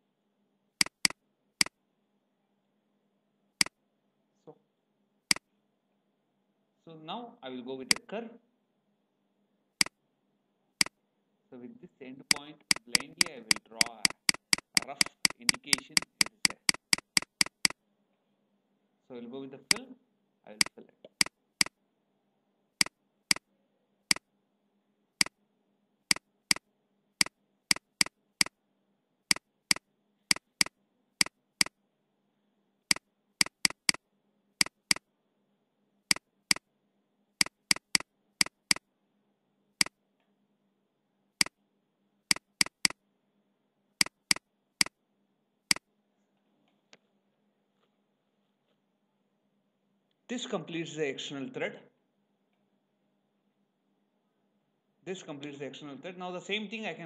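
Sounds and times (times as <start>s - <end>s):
computer mouse clicks: 0.8s - 1.8s, 12.3s - 17.8s, 19.7s - 19.9s, 20.6s - 21.8s, 27.2s - 28.6s, 29.3s - 31.8s, 32.9s - 34.0s, 34.6s - 35.0s, 37.4s - 38.8s, 42.3s - 43.0s, 44.0s - 45.0s.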